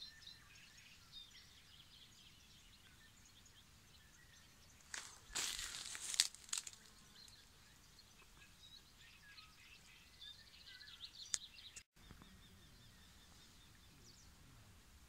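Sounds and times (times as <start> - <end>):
songbirds chirping and trilling: 0.0 - 15.0
footsteps rustling through grass: 4.8 - 7.4.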